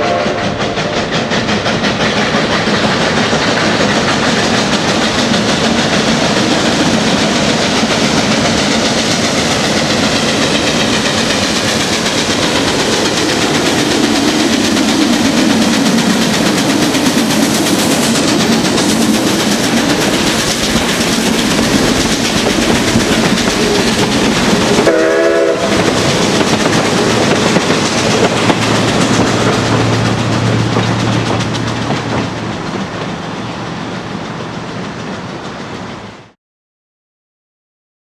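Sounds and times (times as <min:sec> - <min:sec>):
steam whistle: 0:00.0 - 0:01.1, 0:24.8 - 0:25.9
rail noise: 0:00.0 - 0:36.4
steam locomotive exhaust: 0:00.0 - 0:36.4.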